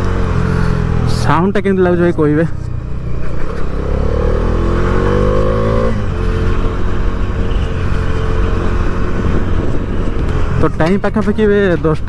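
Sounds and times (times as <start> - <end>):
motorcycle engine revving: 0.0 - 1.5, 2.7 - 11.0.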